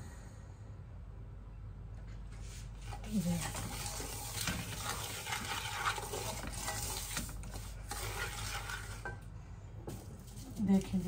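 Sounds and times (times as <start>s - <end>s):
wooden spatula scraping metal pot: 2.5s - 9.3s, 9.9s - 11.0s.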